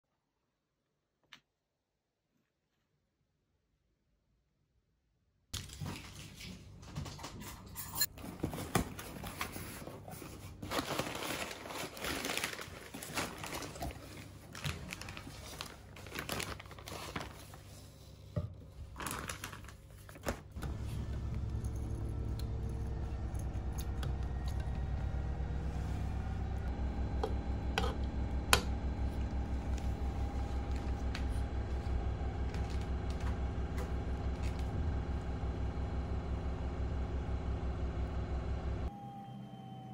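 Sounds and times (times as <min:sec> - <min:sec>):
paper and plastic crinkling: 0:05.6 - 0:06.9, 0:08.1 - 0:18.0, 0:18.8 - 0:20.6
steady low hum: 0:19.6 - 0:39.2.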